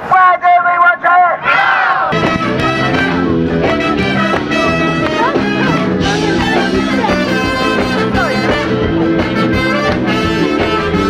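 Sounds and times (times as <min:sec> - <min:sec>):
instrumental music: 0:02.1 - 0:11.0.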